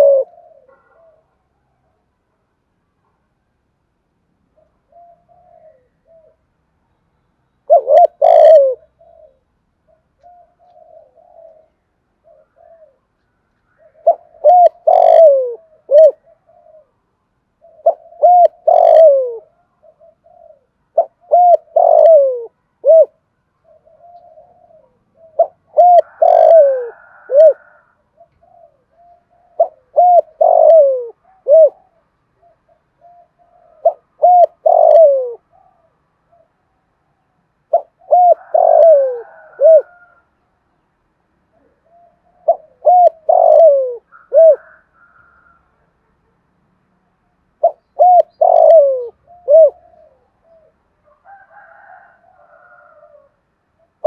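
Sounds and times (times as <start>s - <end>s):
dove cooing: 0.0s - 2.0s, 4.5s - 6.6s, 7.6s - 40.4s, 41.4s - 46.1s, 47.6s - 54.0s
soft low coos: 0.0s - 2.0s, 4.6s - 6.6s, 7.7s - 17.0s, 17.6s - 36.8s, 37.7s - 40.4s, 41.5s - 46.0s, 47.6s - 54.0s.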